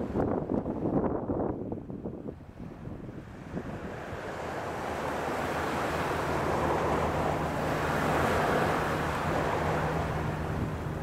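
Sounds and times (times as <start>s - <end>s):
small waves breaking on beach: 2.3s - 11.0s.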